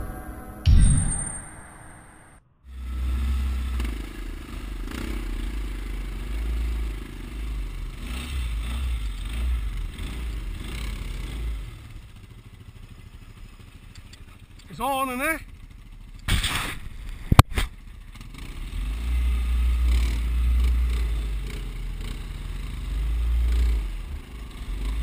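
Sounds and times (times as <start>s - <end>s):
atv engine running: 2.7s - 25.0s.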